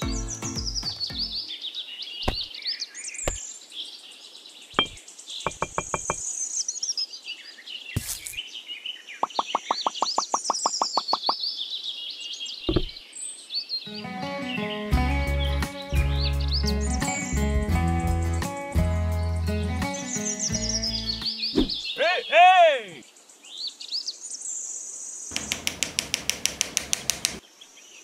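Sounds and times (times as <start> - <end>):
small birds chirping: 0.0 - 25.8
sharp knocks and clicks: 2.3 - 2.5, 4.8 - 6.2, 12.7 - 13.0, 25.3 - 27.4.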